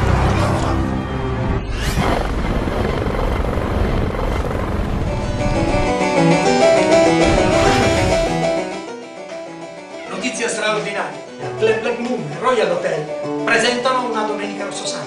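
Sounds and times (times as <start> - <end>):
dramatic trailer music: 0.0 - 9.5
rising whoosh: 1.5 - 8.9
low rumbling noise: 1.6 - 6.0.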